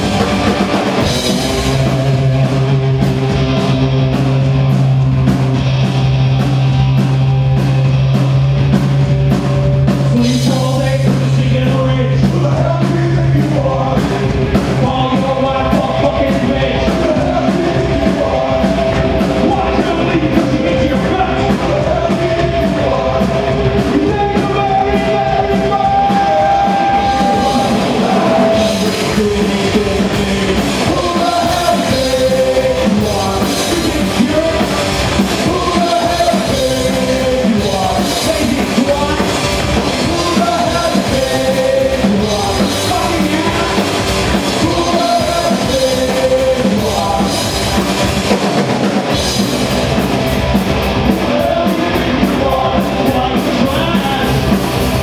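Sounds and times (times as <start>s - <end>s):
punk rock band playing: 0.0s - 55.0s
person singing: 10.1s - 49.2s, 51.0s - 55.0s.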